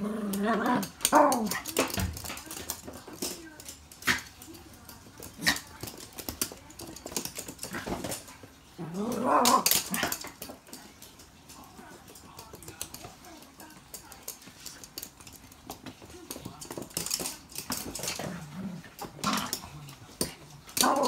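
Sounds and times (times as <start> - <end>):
dog growling in play: 0.0 - 1.7, 8.7 - 10.3, 18.0 - 20.0, 20.6 - 21.0.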